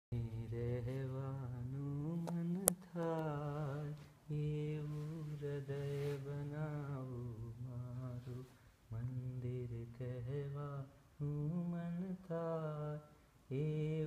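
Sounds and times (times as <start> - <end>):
man singing unaccompanied: 0.1 - 14.0.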